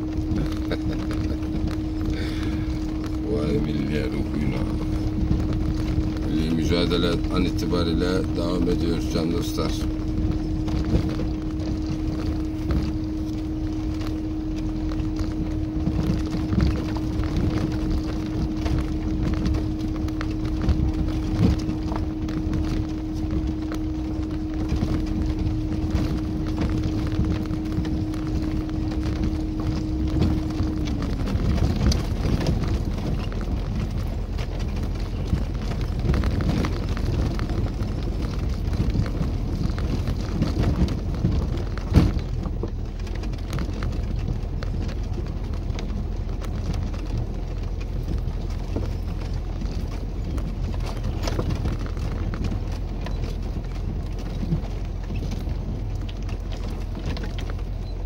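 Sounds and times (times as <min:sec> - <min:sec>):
car engine low rumble: 0:00.0 - 0:58.0
steady whine: 0:00.0 - 0:58.0.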